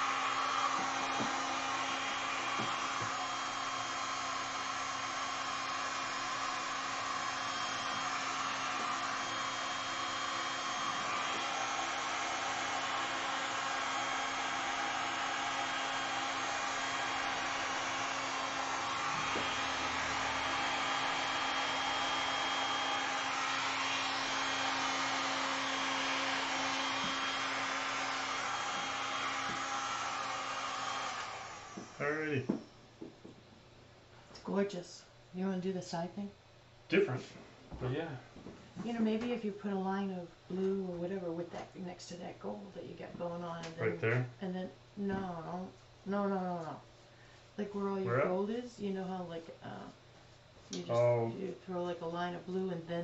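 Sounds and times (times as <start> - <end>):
heat gun blowing hot air: 0.0 - 32.6.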